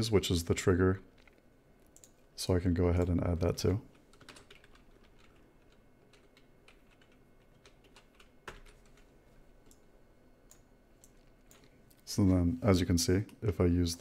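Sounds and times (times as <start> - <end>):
computer keyboard keystrokes: 1.2 - 2.2, 3.0 - 9.9.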